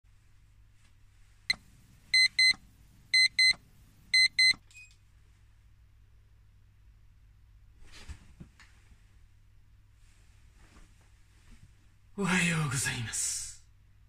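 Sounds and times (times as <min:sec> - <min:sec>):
alarm clock click: 0:02.2 - 0:02.6, 0:04.2 - 0:04.6
alarm clock double beeps: 0:02.2 - 0:02.6, 0:03.2 - 0:04.6.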